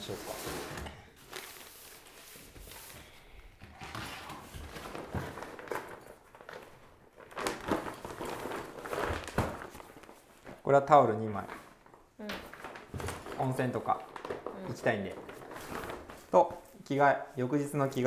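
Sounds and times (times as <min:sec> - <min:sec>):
dry bag rustling: 0:03.8 - 0:16.9.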